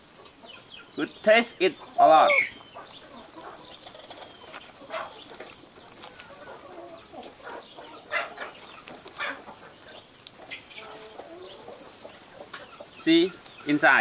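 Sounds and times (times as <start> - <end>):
dried leaf wrapper crackling: 2.9 - 12.3, 13.3 - 14.0.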